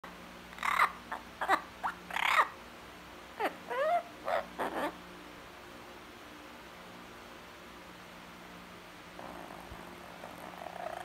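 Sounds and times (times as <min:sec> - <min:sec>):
parrot calls and chatter: 0:00.5 - 0:02.6, 0:03.3 - 0:05.4, 0:09.2 - 0:11.0.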